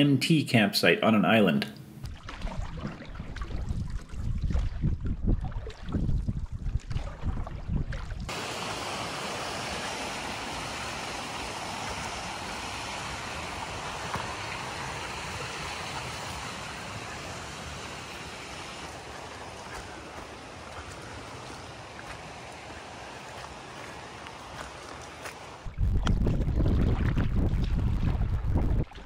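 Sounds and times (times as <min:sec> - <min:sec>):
wind rumbling on microphone: 0:02.0 - 0:08.4, 0:10.7 - 0:29.0
steady rushing hiss: 0:08.3 - 0:25.7.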